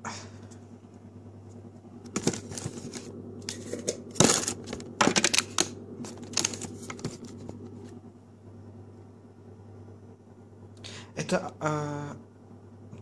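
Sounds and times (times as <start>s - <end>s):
packets clattering on plastic shelves: 2.0s - 7.9s.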